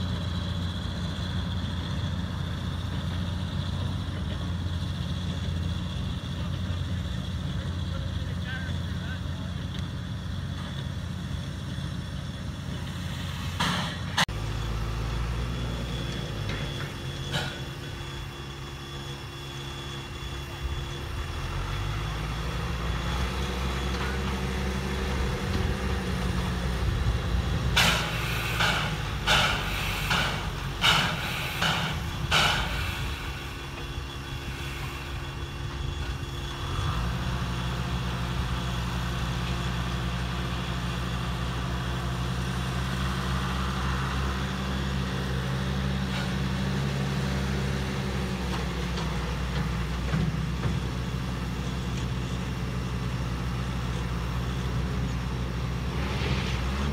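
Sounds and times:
tractor diesel engine running: 0:00.0 - 0:56.9
short hissing steam bursts: 0:27.8 - 0:35.7.

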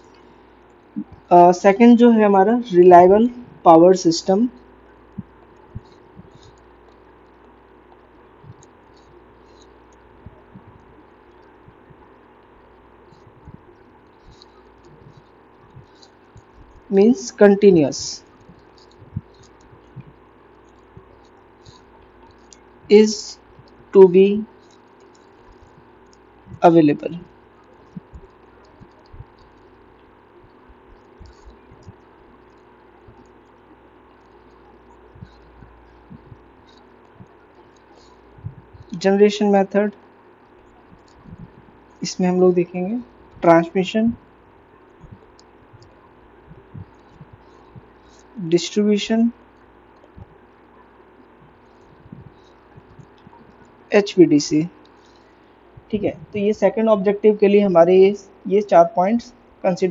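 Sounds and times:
faint microphone hum: 0:00.0 - 0:59.9
stylus tapping and scratching tablet: 0:02.9 - 0:59.2.

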